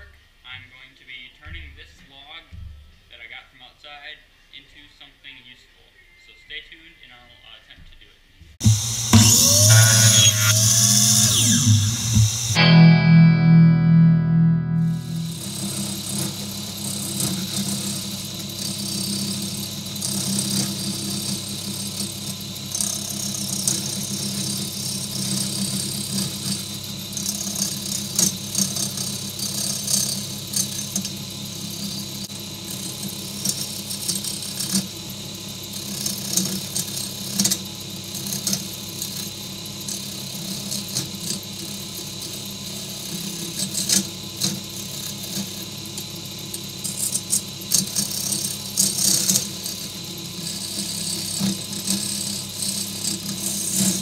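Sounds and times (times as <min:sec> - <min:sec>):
turning tool scraping wood: 0:08.6 - 0:12.6
wood lathe motor humming: 0:08.6 - 0:12.6, 0:14.9 - 0:54.0.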